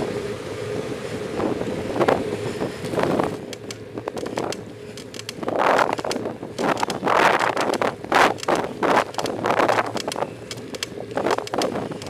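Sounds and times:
steady hum: 0:00.0 - 0:12.0
wind buffeting microphone: 0:00.8 - 0:12.0
sharp ticks and clicks: 0:03.5 - 0:12.0.

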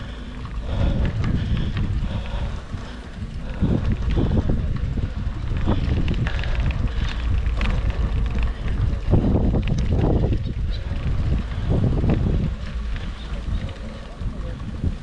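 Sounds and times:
heavy low rumble: 0:00.0 - 0:15.0
wind buffeting microphone: 0:00.0 - 0:15.0
muffled voices: 0:10.7 - 0:15.0.

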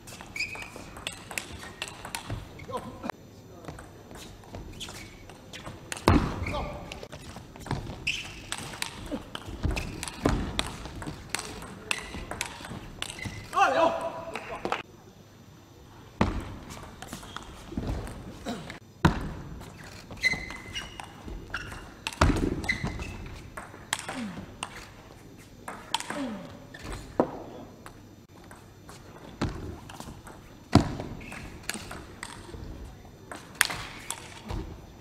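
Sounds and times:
table tennis ball hits: 0:07.6 - 0:13.4.

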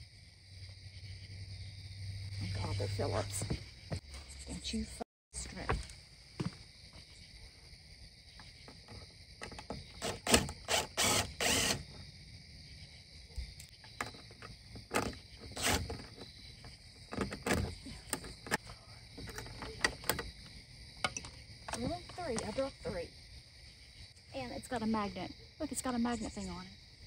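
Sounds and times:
insects trilling: 0:00.0 - 0:27.0
cordless drill driving screw: 0:10.0 - 0:11.8, 0:14.9 - 0:16.0
tools knocking and clicking: 0:21.0 - 0:22.5.

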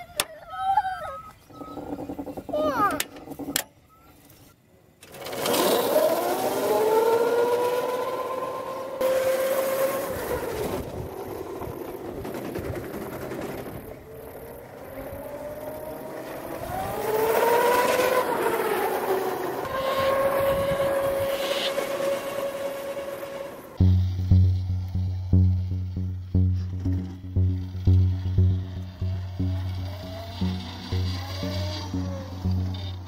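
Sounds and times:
electric motor whining: 0:05.2 - 0:12.0, 0:14.2 - 0:24.3, 0:24.9 - 0:33.0.

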